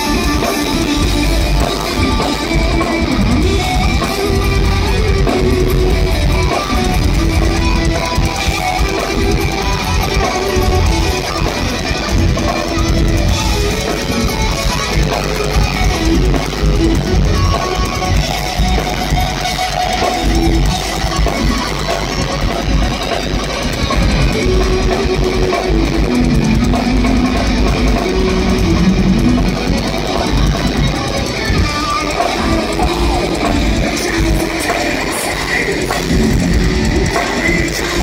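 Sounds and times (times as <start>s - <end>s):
bass guitar: 0.0s - 38.0s
distorted electric guitars: 0.0s - 38.0s
pounding drum kit: 0.0s - 38.0s.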